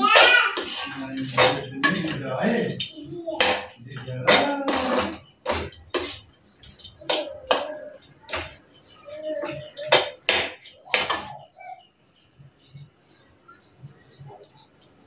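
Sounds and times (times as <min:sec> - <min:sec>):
metal spatula scraping pan: 0:00.0 - 0:02.8, 0:03.4 - 0:08.6.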